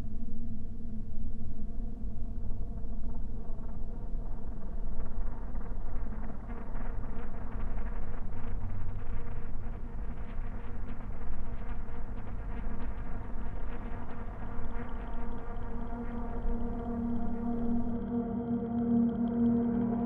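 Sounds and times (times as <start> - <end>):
low droning music: 11.6 - 20.0.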